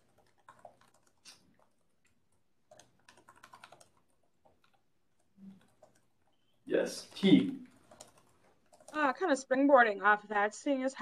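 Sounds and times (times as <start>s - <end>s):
typing on computer keyboard: 0.0s - 6.4s, 7.1s - 9.3s.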